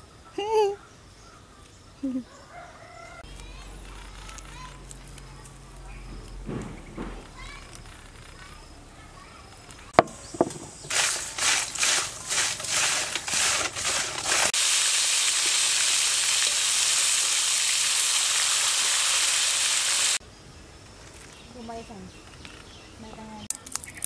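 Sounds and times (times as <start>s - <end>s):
insects deep-frying in hot oil: 10.2s - 20.2s.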